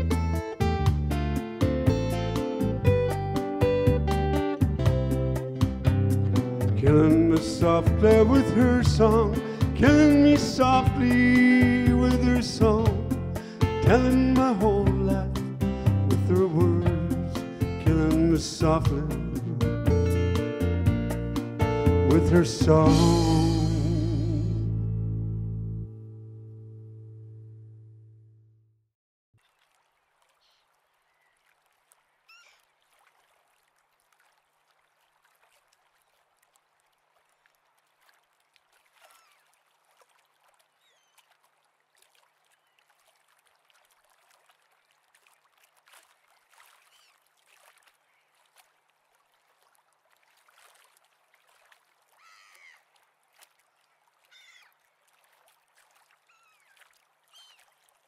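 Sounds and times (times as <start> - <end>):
faint bird chirps: 30.3 - 31.5, 32.1 - 32.7, 39.0 - 39.5, 40.8 - 41.3, 46.8 - 47.2, 52.2 - 52.8, 54.3 - 54.7, 56.3 - 57.7.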